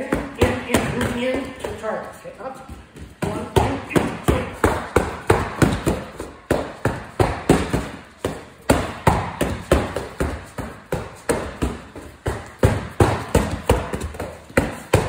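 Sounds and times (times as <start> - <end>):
boxing gloves hitting pads: 3.0 - 15.0.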